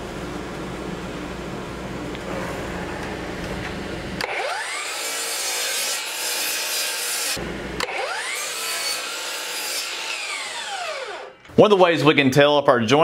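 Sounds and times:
miter saw whining: 0:04.2 - 0:11.5
saw cutting wood: 0:04.2 - 0:11.5.

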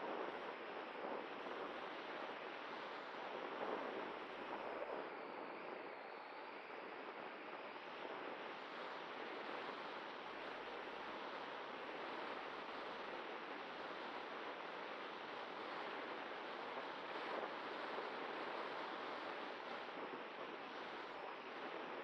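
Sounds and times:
faint steady hum: 0:00.0 - 0:22.0
rushing airflow on microphone: 0:06.8 - 0:22.0.

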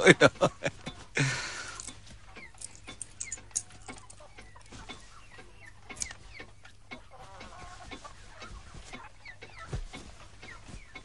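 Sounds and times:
faint chickens clucking: 0:00.0 - 0:11.0
cloth rustling: 0:04.6 - 0:05.2, 0:07.4 - 0:11.0.

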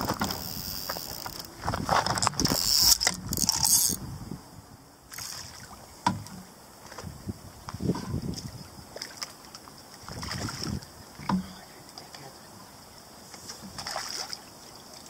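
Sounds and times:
fishing rod rustling and scuffing: 0:00.0 - 0:04.0
rod knocking on rests: 0:06.0 - 0:06.5.

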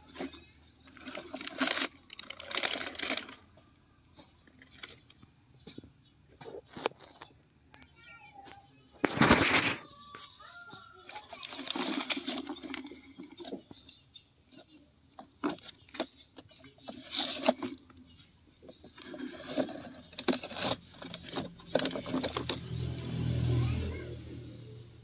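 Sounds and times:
plastic toy truck scraping on dirt: 0:00.0 - 0:03.5, 0:09.0 - 0:23.6.

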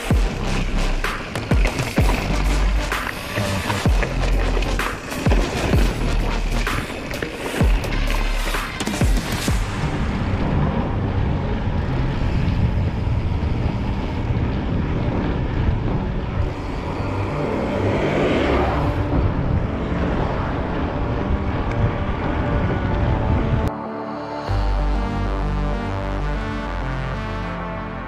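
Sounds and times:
tyres rolling over gravel: 0:00.0 - 0:09.7
faint music with bass: 0:00.0 - 0:23.8
wind rushing over microphone: 0:00.0 - 0:23.8.

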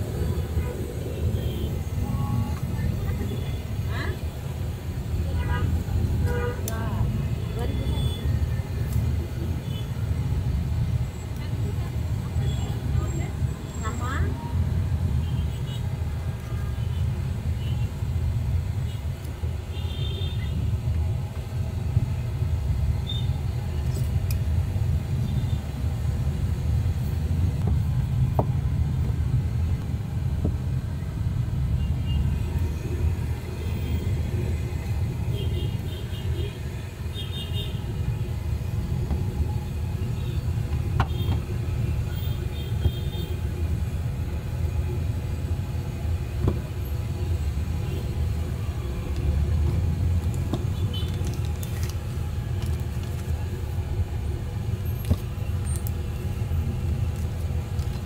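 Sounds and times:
low rumble of road traffic: 0:00.0 - 0:58.0
paper crinkling being folded: 0:50.2 - 0:53.8.

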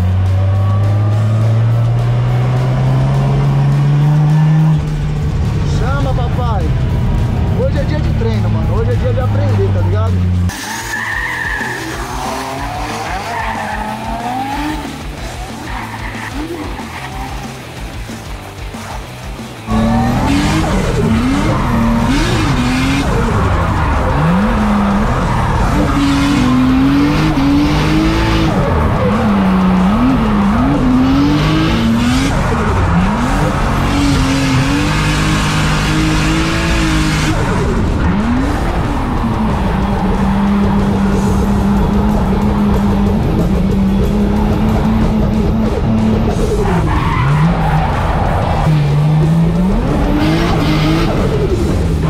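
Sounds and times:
car engine revving hard: 0:00.0 - 0:18.0, 0:19.5 - 0:52.0
distant car drifting: 0:00.0 - 0:52.0
tyres squealing: 0:10.5 - 0:17.6.

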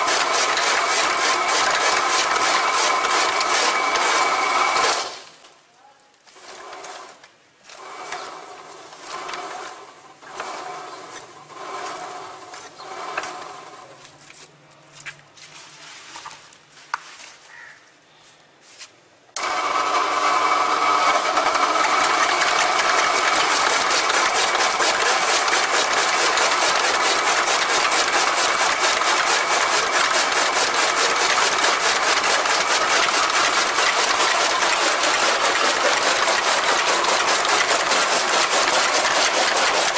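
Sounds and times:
chaff cutter chopping fodder: 0:00.0 - 0:05.3, 0:06.4 - 0:14.1, 0:19.4 - 0:39.9.

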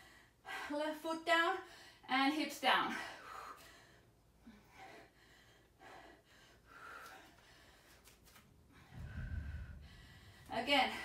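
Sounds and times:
woman breathing faintly: 0:03.0 - 0:11.0.

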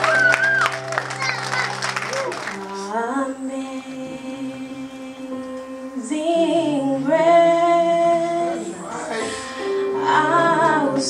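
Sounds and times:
woman singing into a microphone: 0:02.7 - 0:11.0.

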